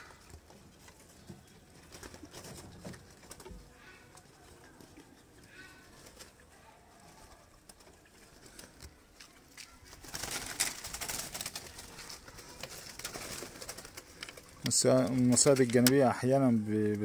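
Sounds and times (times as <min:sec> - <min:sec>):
pigeons cooing: 0:00.0 - 0:08.9.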